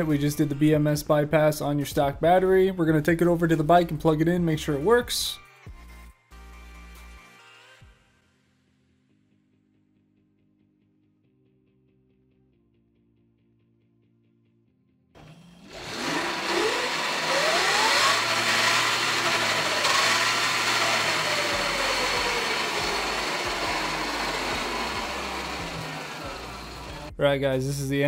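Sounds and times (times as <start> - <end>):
drive whirring: 15.2 - 27.1
electric motor whine: 15.2 - 27.1.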